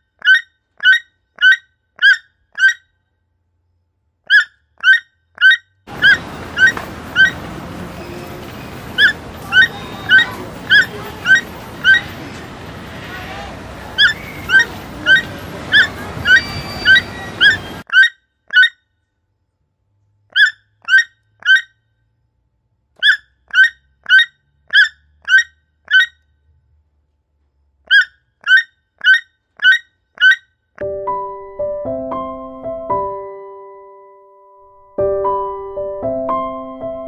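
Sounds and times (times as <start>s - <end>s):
toucan calling: 0.2s - 2.9s, 4.3s - 12.5s, 13.1s - 18.8s, 20.3s - 21.8s, 23.0s - 26.2s, 27.9s - 30.5s
soft piano music: 30.8s - 37.0s.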